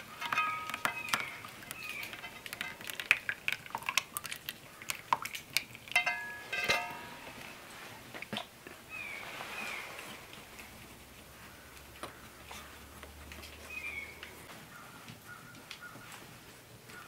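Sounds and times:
saucepan and spoon clinking: 0.0s - 4.3s, 5.6s - 7.6s.

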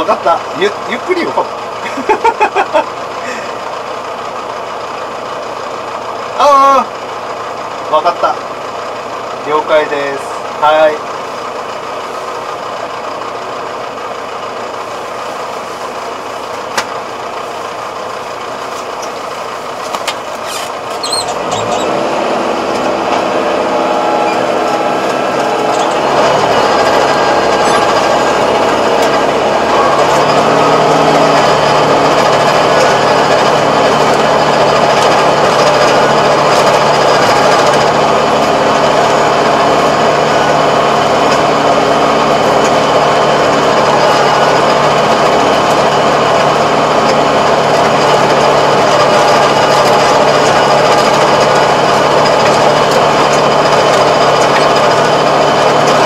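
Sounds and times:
tractor diesel engine under load: 0.0s - 56.0s
rotary tiller churning soil: 14.9s - 56.0s.

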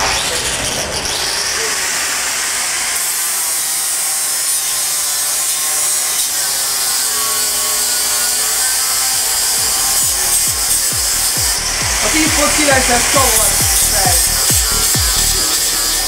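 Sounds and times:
angle grinder grinding steel: 0.0s - 16.0s
grinder motor whine: 0.0s - 16.0s.

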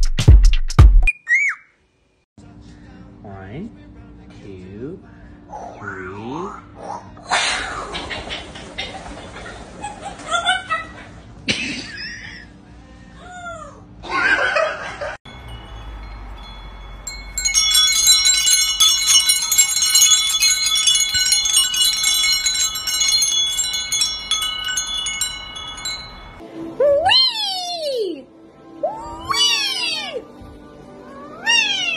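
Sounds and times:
parrot calls and whistles: 1.1s - 1.8s
tube wind chimes ringing: 15.3s - 26.4s.

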